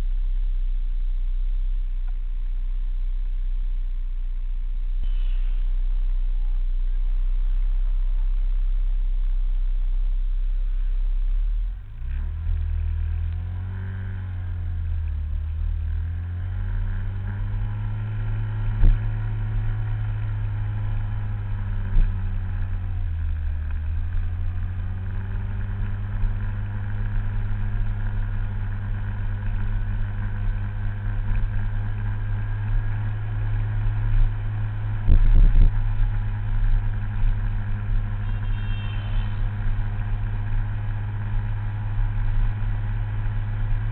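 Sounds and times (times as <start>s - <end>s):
scooter engine running: 14.3s - 43.9s
wind rumble on microphone: 30.3s - 38.0s.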